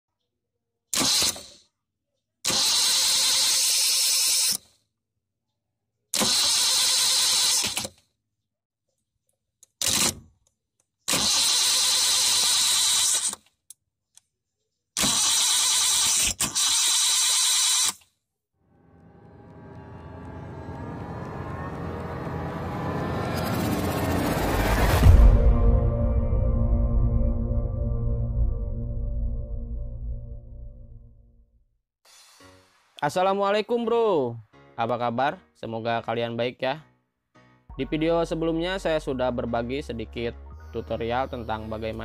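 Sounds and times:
droning riser: 18.6 - 31.4
intro music: 18.6 - 31.4, 37.7 - 42.0.

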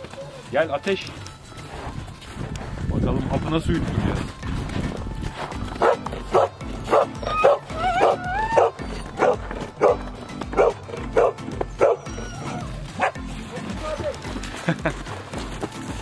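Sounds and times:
background music: 0.0 - 16.0
dog barking: 5.8 - 13.2
dog whining: 7.0 - 10.0, 10.6 - 13.2.

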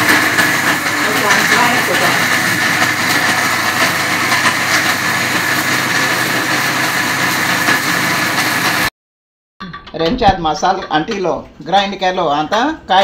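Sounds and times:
mixer grinder whirring: 0.0 - 8.9.

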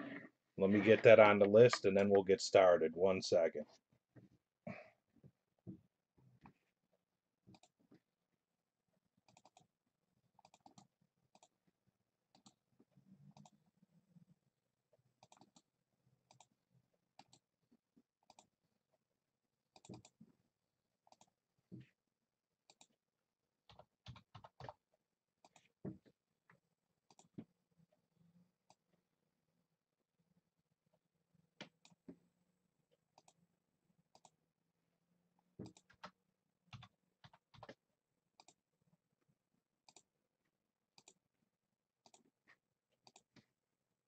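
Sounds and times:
keyboard typing: 23.6 - 24.8, 35.6 - 37.8.

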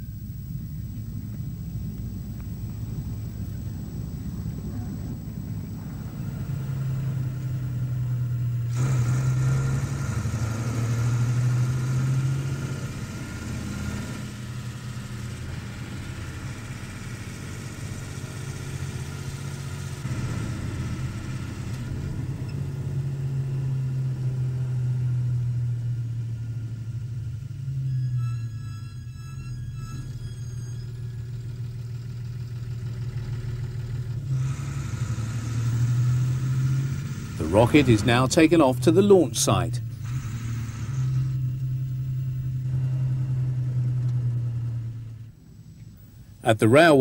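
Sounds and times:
lorry engine running: 0.0 - 47.0
hissing: 27.7 - 44.8.

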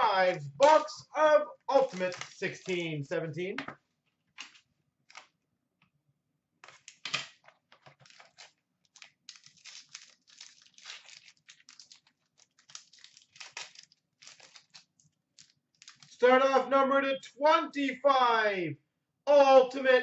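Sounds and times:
foil wrapper crinkling: 1.7 - 2.8, 6.6 - 16.2.

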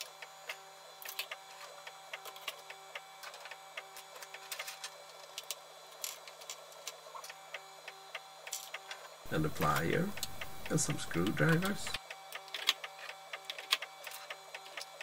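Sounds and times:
stepper motors singing: 9.2 - 15.0.

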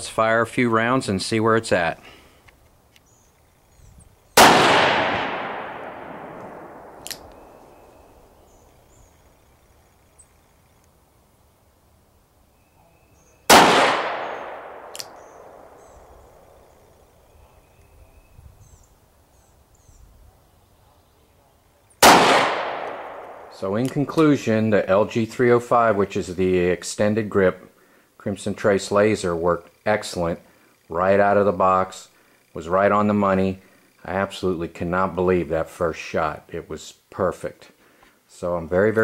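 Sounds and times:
revolver shots echoing: 4.4 - 7.9, 13.5 - 16.0, 22.0 - 24.1.

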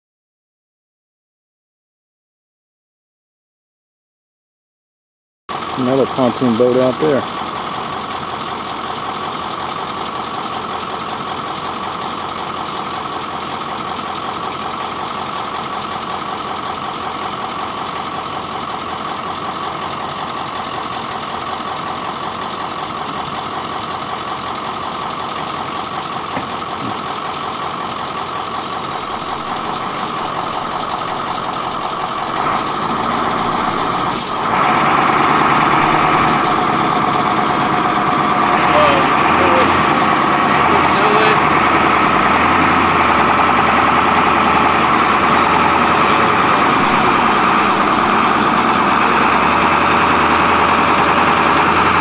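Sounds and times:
engine idling: 5.5 - 52.0.

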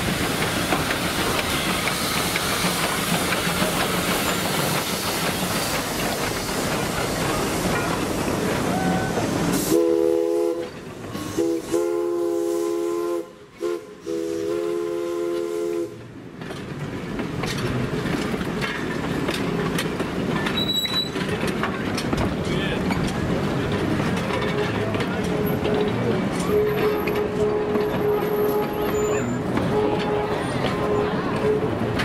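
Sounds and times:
train wheel clicks: 0.0 - 8.8, 16.3 - 32.0
train cars rolling past: 0.0 - 32.0.

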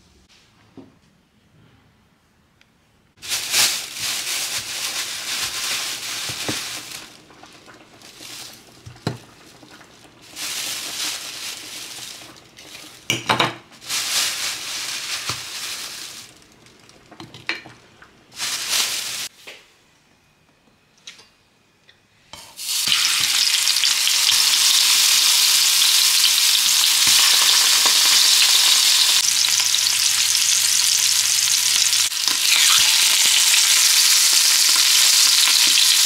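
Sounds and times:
rustling: 3.2 - 13.1, 13.8 - 17.2, 18.3 - 19.3.

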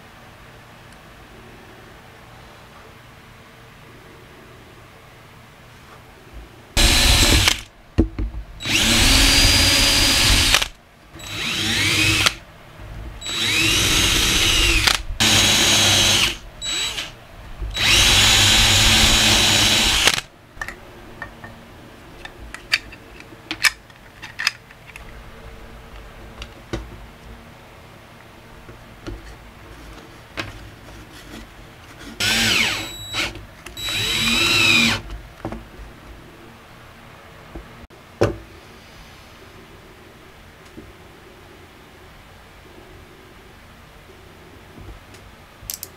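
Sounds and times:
cordless drill whining: 6.8 - 7.6, 8.6 - 12.4, 13.2 - 20.2, 32.2 - 35.0
small handling clicks: 22.2 - 25.2, 45.7 - 45.9.

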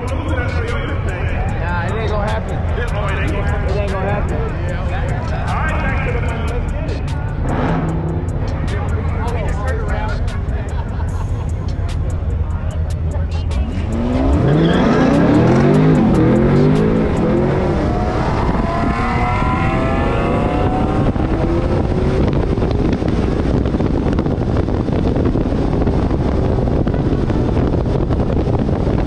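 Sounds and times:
car engine at full throttle: 0.0 - 29.0
wind noise: 0.0 - 29.0.

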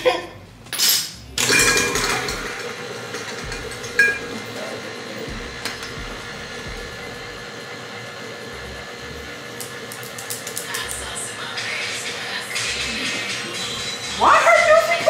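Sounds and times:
stand mixer humming: 1.4 - 15.0.

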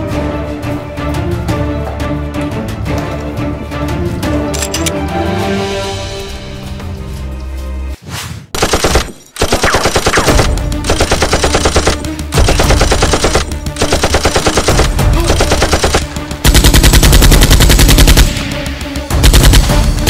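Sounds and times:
machine-gun fire bursts: 8.6 - 20.0.

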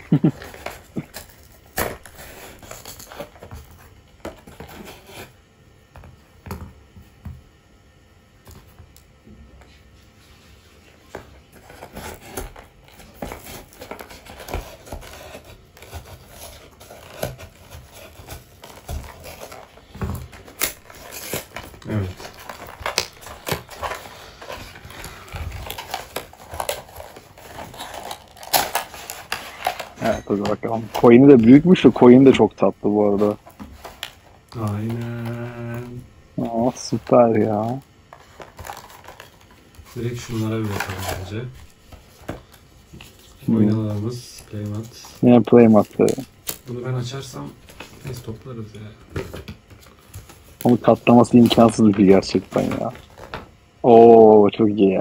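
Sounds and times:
packaging rustling and crinkling: 0.0 - 5.3, 11.0 - 53.8
cardboard scraping and tearing: 11.6 - 32.1, 33.0 - 42.2.

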